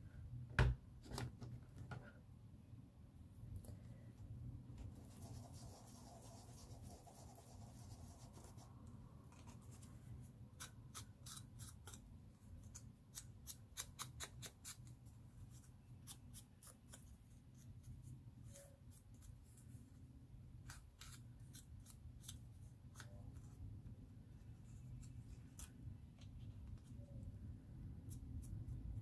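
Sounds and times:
foam tool scratching on paper: 0:05.0 - 0:08.7.

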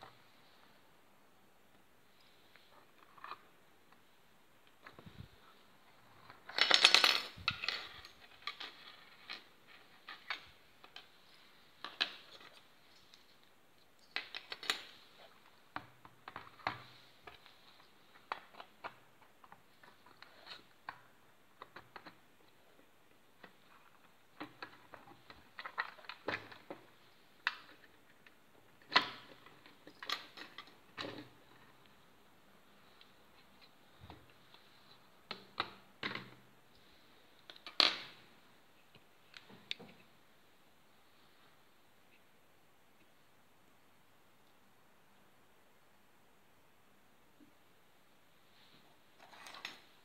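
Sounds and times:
plastic toy parts clicking and rattling: 0:06.1 - 0:11.1.

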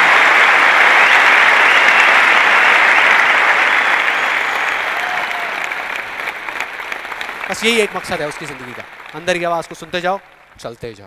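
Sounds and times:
large audience applauding: 0:00.0 - 0:11.0.

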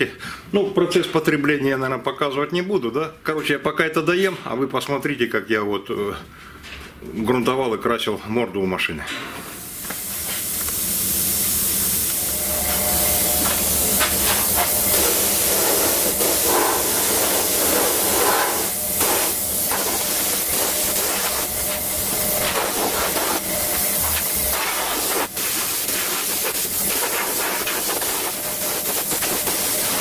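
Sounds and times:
spray gun hissing: 0:09.6 - 0:30.0.

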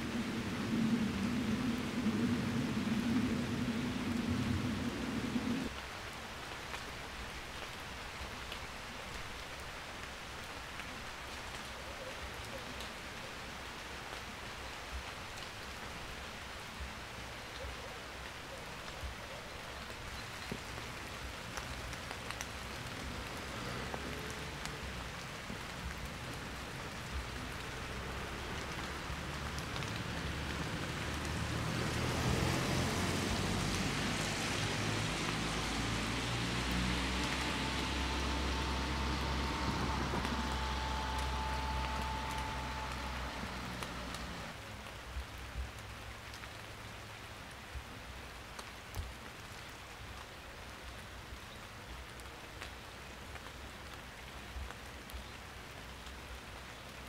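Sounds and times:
low rumble: 0:00.0 - 0:05.7
steady rain: 0:00.0 - 0:57.0.

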